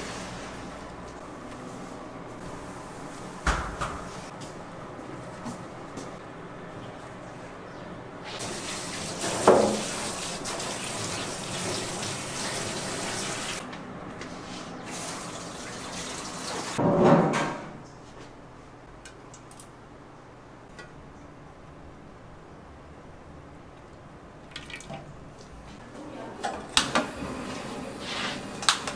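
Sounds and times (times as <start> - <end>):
water running from tap: 8.4 - 13.6, 14.9 - 16.8
water drips: 24.4 - 25.5.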